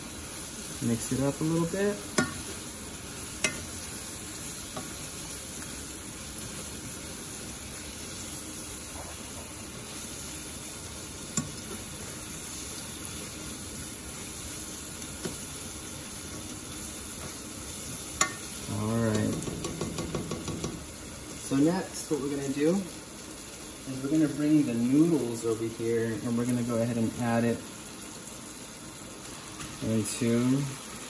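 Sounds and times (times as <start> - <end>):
sauce sizzling in a saucepan: 0.0 - 31.0
spoon clicking against a pan: 2.1 - 2.4, 3.4 - 3.6, 18.2 - 18.5.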